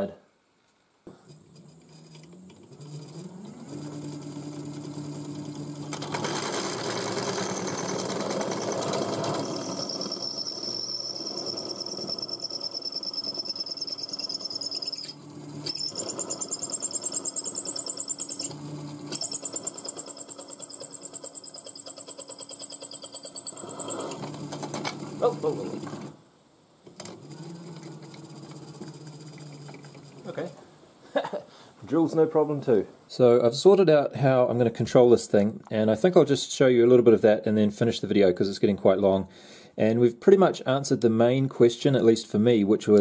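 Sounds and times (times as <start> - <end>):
electric motor whine: 1.2 - 26.2, 27.0 - 30.6
drill grinding into sheet steel: 1.3 - 26.1
drill bit chattering: 1.5 - 24.5
drill bit squealing: 7.2 - 24.3.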